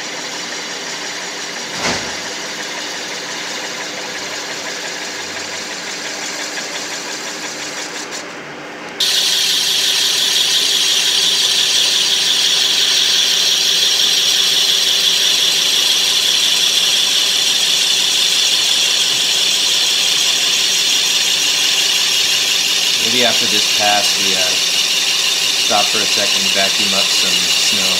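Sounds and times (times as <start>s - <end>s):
lathe machine hum: 0.0s - 8.4s, 9.0s - 27.9s
loud high hiss: 22.7s - 27.9s.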